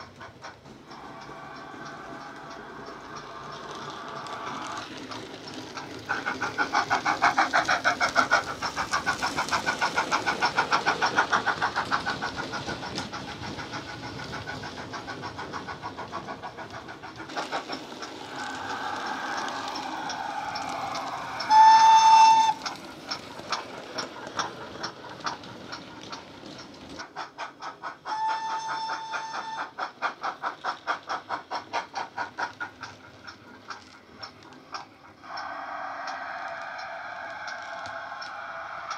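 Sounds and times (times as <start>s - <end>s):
model steam locomotive chuffs: 0.0s - 38.9s
steam locomotive whistle: 20.0s - 22.7s, 28.1s - 29.7s.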